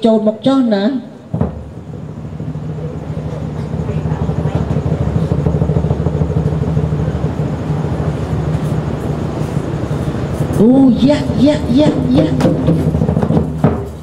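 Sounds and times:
large drums rolling: 0:01.2 - 0:14.0
sharp drum strike: 0:01.3 - 0:01.9, 0:11.3 - 0:14.0.

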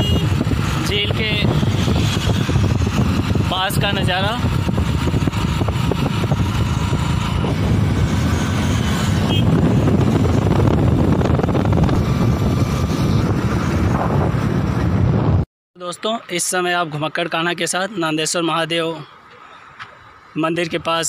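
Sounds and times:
vehicle rumble: 0:00.0 - 0:15.4
wind buffeting microphone: 0:00.0 - 0:15.5.

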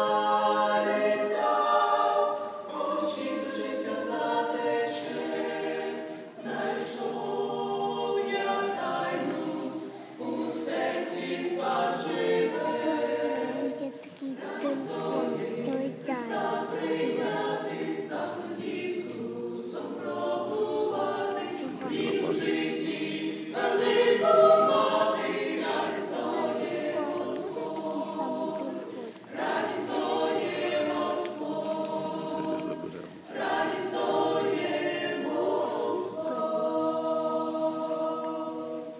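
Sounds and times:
group singing in harmony: 0:00.0 - 0:38.9.

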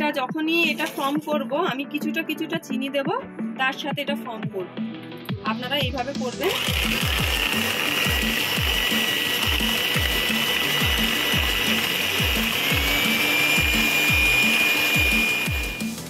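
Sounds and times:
background music with bass drum: 0:00.0 - 0:16.0
electric hand mixer whining: 0:06.4 - 0:16.0.

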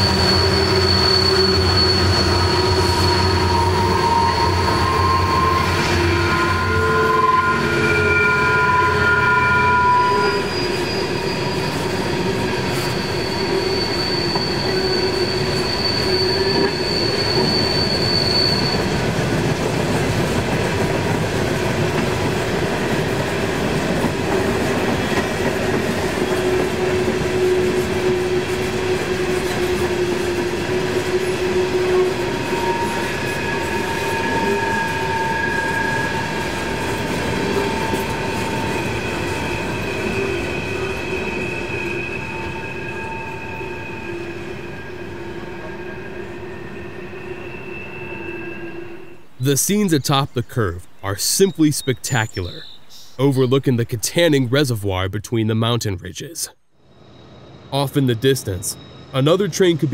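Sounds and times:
wheel squeals: 0:00.0 - 0:20.2, 0:24.5 - 0:49.4, 0:58.7 - 0:59.2
train wheels rumbling on rail: 0:00.0 - 0:49.4.

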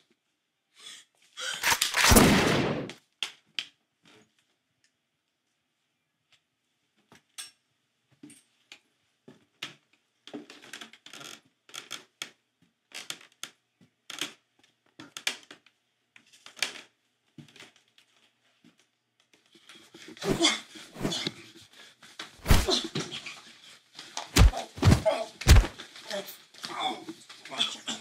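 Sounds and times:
boot footsteps on stairs: 0:22.4 - 0:22.8, 0:24.4 - 0:25.8.

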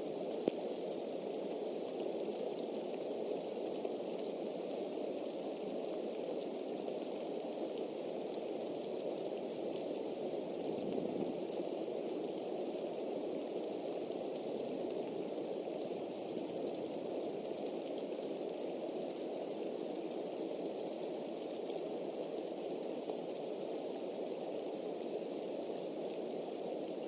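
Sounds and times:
steady rain hiss: 0:00.0 - 0:27.0
single raindrop ticks: 0:00.4 - 0:00.6.

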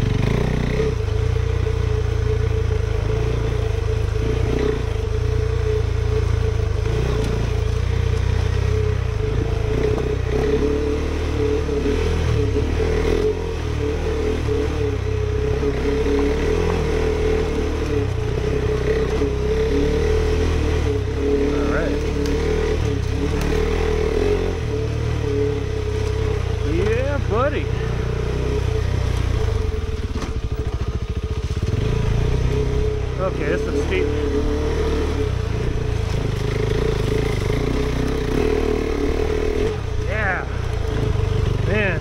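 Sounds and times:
clatter over rough ground: 0:00.0 - 0:11.6, 0:20.8 - 0:42.0
motorcycle engine running: 0:00.0 - 0:42.0.

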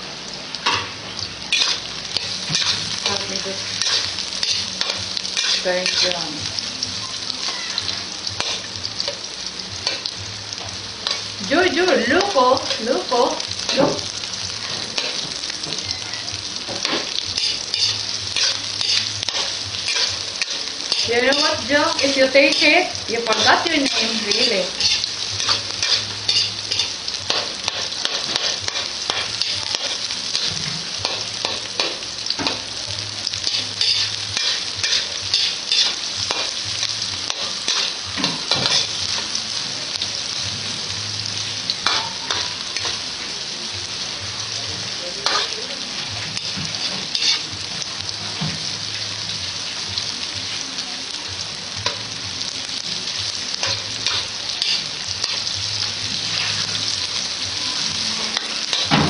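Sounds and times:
onions sizzling in hot oil: 0:00.0 - 0:59.0
metal spatula scraping pan: 0:01.5 - 0:06.2, 0:16.7 - 0:32.6, 0:37.3 - 0:39.0, 0:46.2 - 0:47.5.

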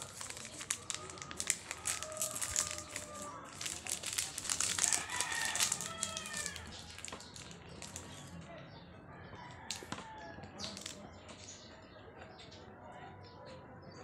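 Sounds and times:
crunchy bite: 0:00.0 - 0:08.2
plastic wrapper crinkling: 0:00.0 - 0:08.4, 0:09.7 - 0:11.0
rooster crowing: 0:01.8 - 0:03.5, 0:04.8 - 0:06.7.

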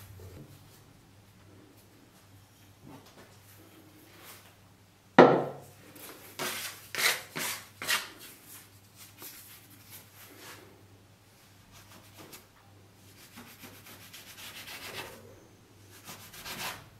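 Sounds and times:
knock on wooden tabletop: 0:05.2 - 0:05.6.

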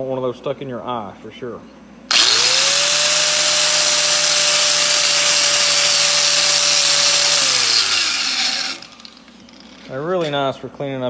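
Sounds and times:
wire wheel grinder whining: 0:02.1 - 0:10.3.

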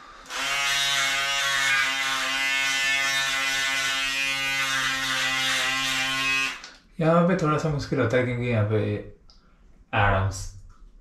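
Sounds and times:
electric shaver buzzing: 0:00.2 - 0:06.7.

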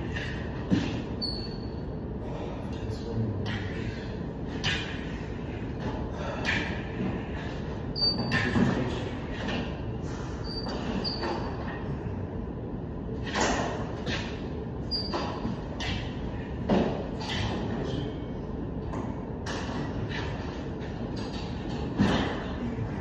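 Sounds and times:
steady background noise: 0:00.0 - 0:23.0
short high squeaks: 0:00.8 - 0:01.8, 0:08.0 - 0:08.6, 0:10.4 - 0:11.6, 0:13.4 - 0:16.1.

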